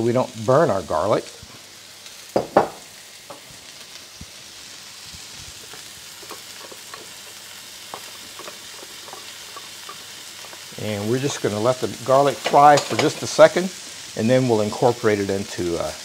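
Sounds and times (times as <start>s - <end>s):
garlic sizzling in a wok: 0.0s - 16.0s
small crackles: 3.1s - 12.5s.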